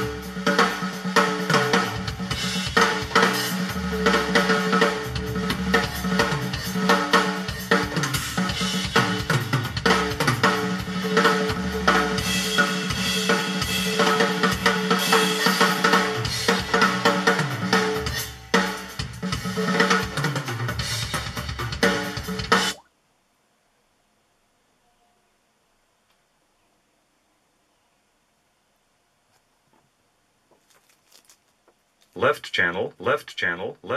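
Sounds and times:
music with drum beat from speakers: 0.0 - 22.8.

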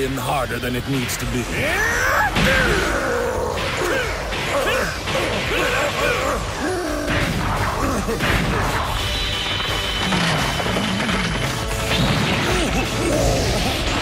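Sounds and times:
background music: 0.0 - 14.0
man grunting and crying out: 1.6 - 8.8, 12.4 - 14.0.

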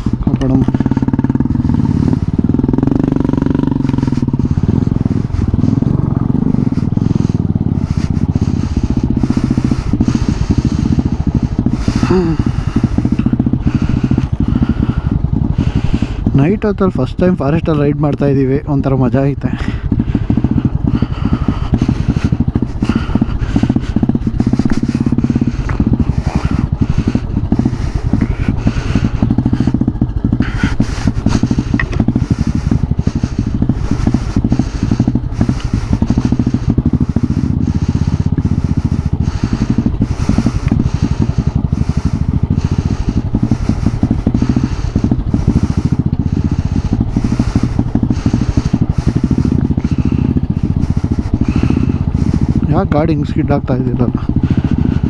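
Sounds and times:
motorcycle engine running: 0.0 - 55.0
bike rattles and knocks: 19.6 - 52.8.

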